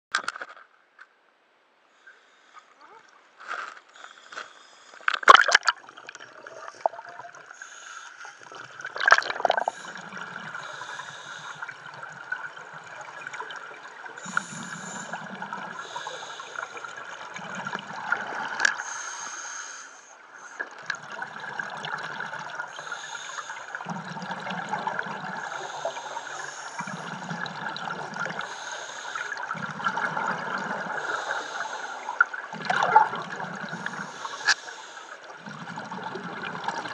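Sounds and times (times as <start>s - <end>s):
exhaled bubbles gurgling: 5.2s - 7.8s, 8.4s - 18.8s, 20.6s - 36.9s
scuba regulator breathing underwater: 6.4s - 12.3s, 14.2s - 17.8s, 18.7s - 20.8s, 22.6s - 36.8s.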